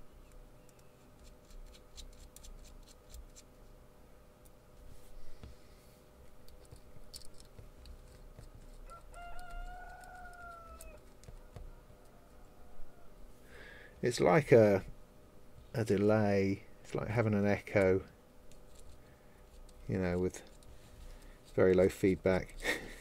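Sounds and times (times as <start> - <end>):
rooster crowing: 8.8 - 13.2.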